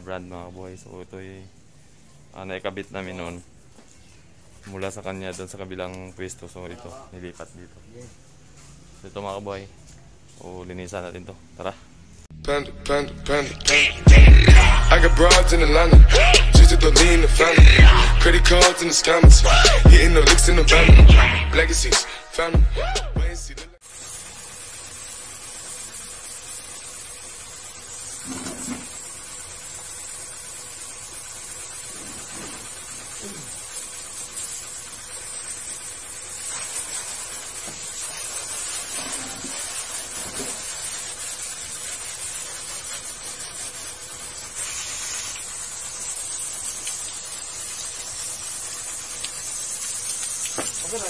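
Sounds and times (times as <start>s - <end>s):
hose spray hissing: 13.7s - 21.2s, 23.8s - 51.0s.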